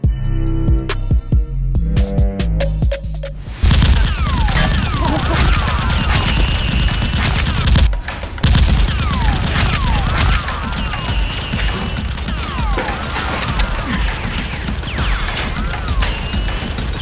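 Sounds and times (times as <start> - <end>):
automatic gunfire effects: 3.6 - 17.0
falling whistles: 4.0 - 7.7, 9.0 - 17.0.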